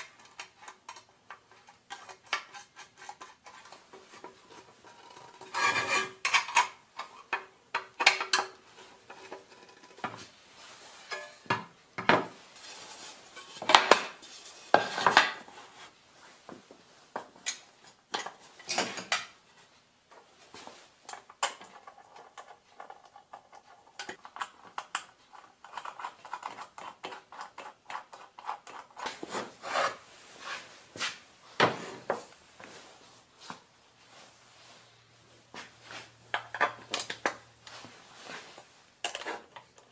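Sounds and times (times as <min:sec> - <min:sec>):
parts scraping: 0:00.0 - 0:11.6, 0:20.5 - 0:39.9.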